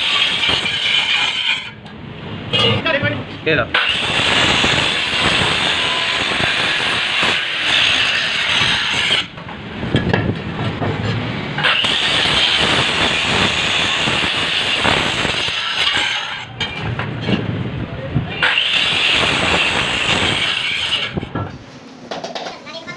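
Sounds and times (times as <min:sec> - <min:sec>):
angle grinder grinding steel: 0:00.0 - 0:01.8, 0:03.7 - 0:09.4, 0:11.6 - 0:16.8, 0:18.4 - 0:21.3.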